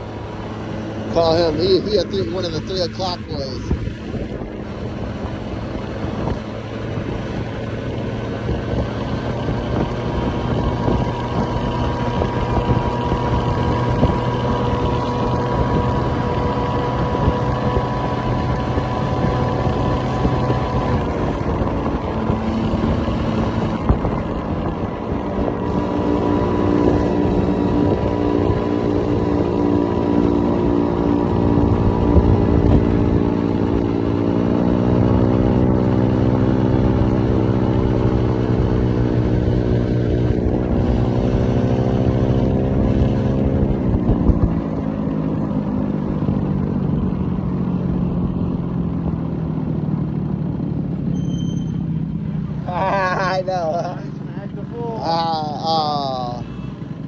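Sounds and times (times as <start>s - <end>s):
scooter engine running: 0.0s - 57.0s
wind buffeting microphone: 3.3s - 47.4s.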